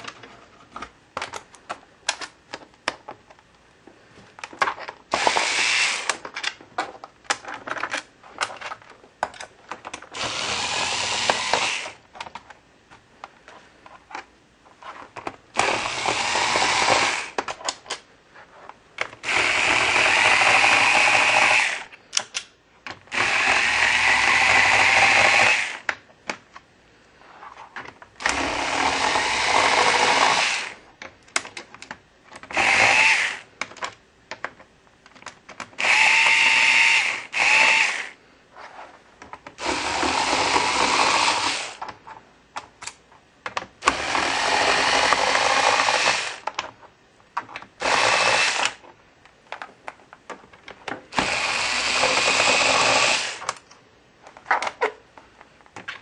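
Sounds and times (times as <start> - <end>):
electric screwdriver motor spinning: 5.1 - 6.2, 10.2 - 12.0, 15.6 - 17.4, 19.2 - 21.9, 23.1 - 25.8, 28.2 - 30.8, 32.5 - 33.4, 35.8 - 38.2, 39.6 - 41.8, 43.8 - 46.4, 47.8 - 48.8, 51.2 - 53.6.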